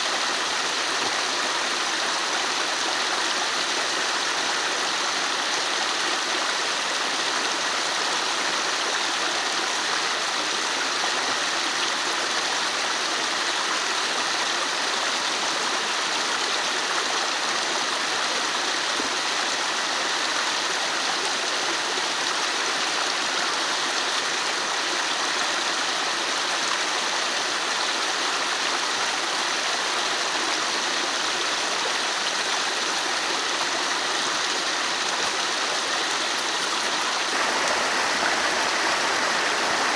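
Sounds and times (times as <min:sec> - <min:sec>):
stream rushing water: 0:00.0 - 0:39.9.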